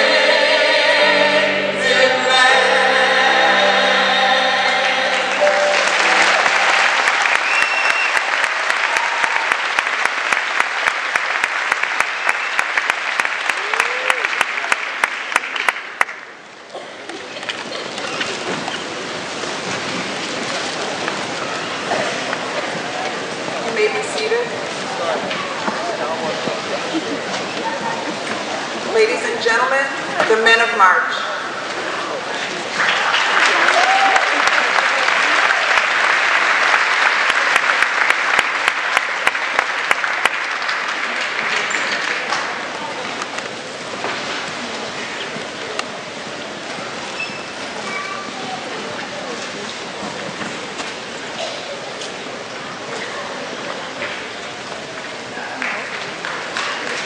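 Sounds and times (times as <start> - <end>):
audience applause: 4.9 - 23.8, 31.7 - 47.0, 48.6 - 57.0
sharp evenly spaced claps: 5.7 - 16.3, 34.3 - 42.5, 55.6 - 57.0.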